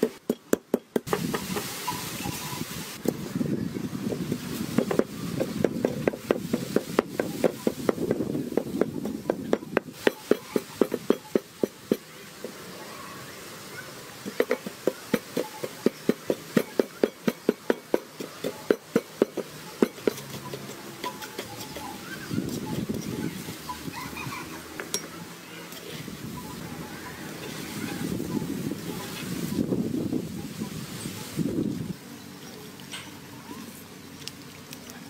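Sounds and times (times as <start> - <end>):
pestle pounding in mortar: 0.0 - 1.7, 4.7 - 12.6, 14.2 - 22.0.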